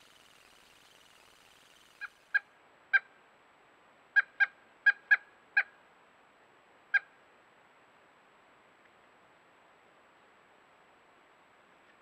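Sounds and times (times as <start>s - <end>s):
woodpecker calling: 0.0s - 3.1s.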